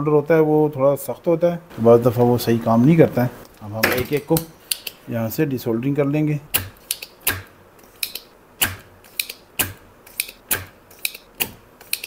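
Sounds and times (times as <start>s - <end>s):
desoldering pump snapping: 3.4s - 5.0s, 6.5s - 12.0s.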